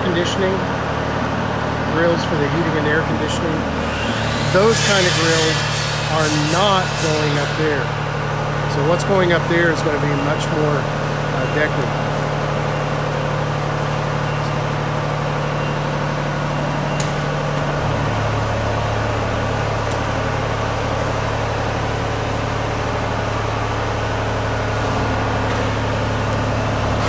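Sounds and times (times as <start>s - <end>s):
machinery humming: 0.0s - 27.0s.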